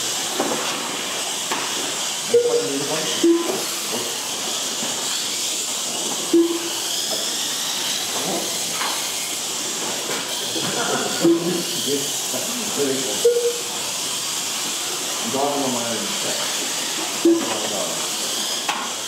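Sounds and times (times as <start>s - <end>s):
toy cars whining: 0.0s - 19.0s
brief motor blips: 2.3s - 3.6s, 6.3s - 6.8s, 11.2s - 11.6s, 13.2s - 13.7s, 17.2s - 17.7s.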